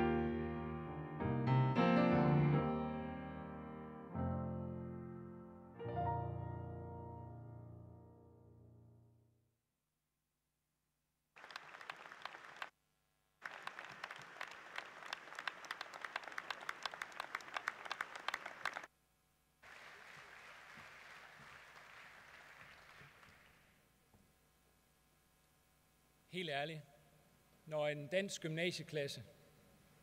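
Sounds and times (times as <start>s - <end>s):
audience applause: 11.4s - 12.7s, 13.4s - 18.9s, 19.6s - 23.8s.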